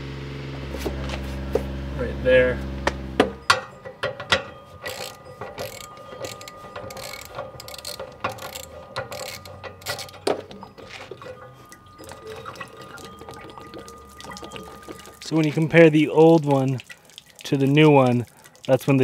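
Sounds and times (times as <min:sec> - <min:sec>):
ratchet wrench clicking: 0:04.8 - 0:10.3.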